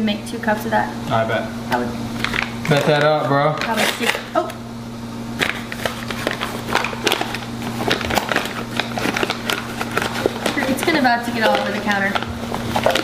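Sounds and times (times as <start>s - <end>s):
steady low hum: 0.0s - 13.0s
paper bag rustling and crinkling: 5.4s - 13.0s.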